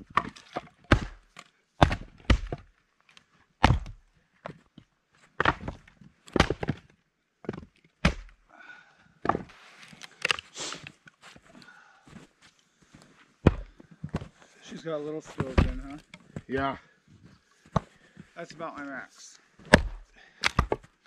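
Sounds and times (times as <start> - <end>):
axe strikes splitting wood: 0.0 - 2.7, 3.6 - 4.0, 5.4 - 6.8, 7.5 - 8.4, 13.4 - 13.7, 15.4 - 16.0, 19.6 - 20.9.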